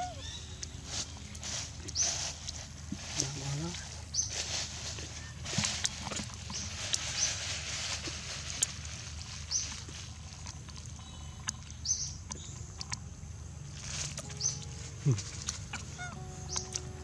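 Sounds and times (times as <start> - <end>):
rustling in dry leaves: 0.0 - 11.0, 13.6 - 17.0
high chirps: 14.2 - 17.0.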